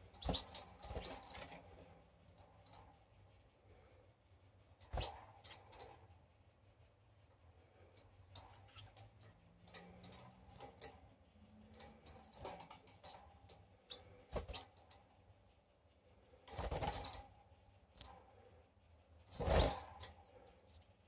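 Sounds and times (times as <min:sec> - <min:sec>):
birds hopping and fluttering in cage: 0:00.0 - 0:03.0, 0:04.8 - 0:06.0, 0:08.3 - 0:15.0, 0:16.4 - 0:17.3, 0:19.2 - 0:20.3.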